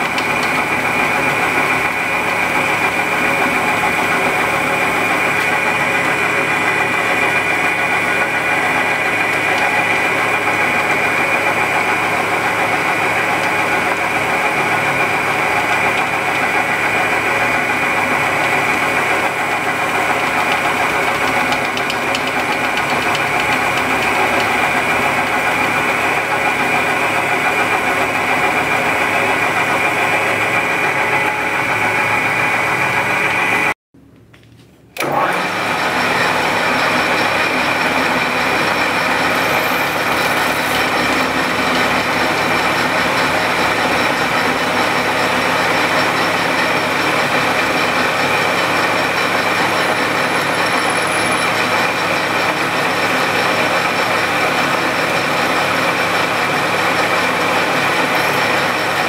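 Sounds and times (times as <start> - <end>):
metal lathe high whine: 0.0 - 33.7, 35.0 - 59.0.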